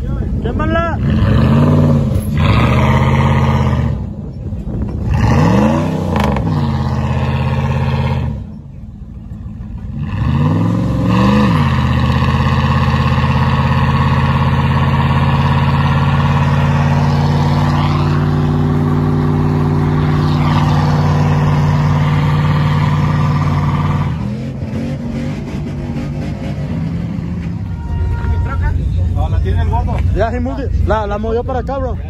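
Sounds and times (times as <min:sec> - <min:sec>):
truck engine revving hard: 0:00.5 - 0:04.2, 0:04.9 - 0:08.6, 0:09.8 - 0:27.7.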